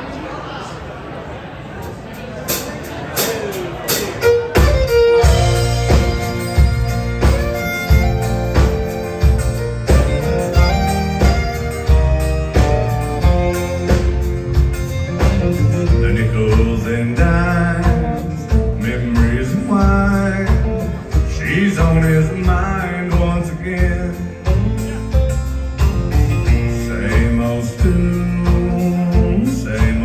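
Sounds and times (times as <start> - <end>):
country band playing: 1.5 - 30.0
man singing: 15.5 - 30.0.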